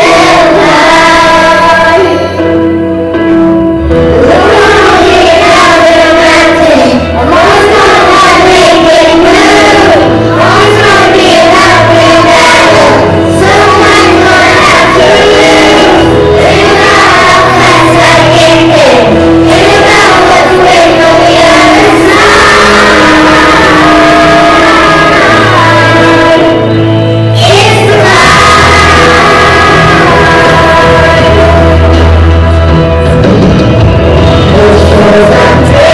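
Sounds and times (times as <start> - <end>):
children singing in unison: 0.0 - 2.6, 4.0 - 32.7, 34.5 - 35.9
instrumental accompaniment: 0.0 - 35.9.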